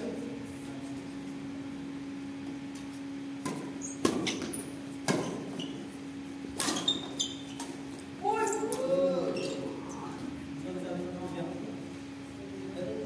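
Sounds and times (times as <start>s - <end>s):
steady low hum: 0.0s - 13.0s
shoes squeaking on court floor: 2.8s - 8.7s, 9.3s - 10.0s
rackets striking shuttlecock: 6.5s - 8.0s.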